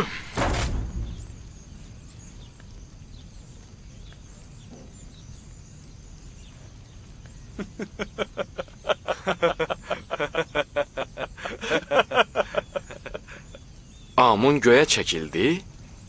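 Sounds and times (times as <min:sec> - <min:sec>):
men laughing: 0:07.5 - 0:13.8.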